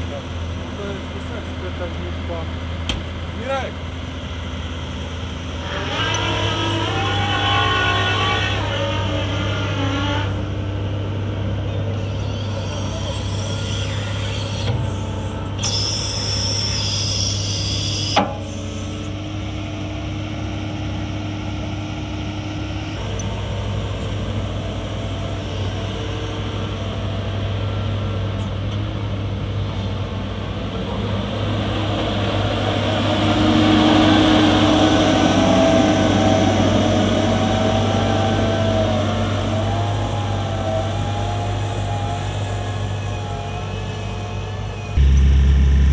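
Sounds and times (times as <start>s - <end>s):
excavator diesel engine running: 0.0s - 9.8s, 10.4s - 45.9s
hydraulics whining: 0.0s - 45.9s
machine whine: 11.7s - 19.2s, 32.7s - 45.9s.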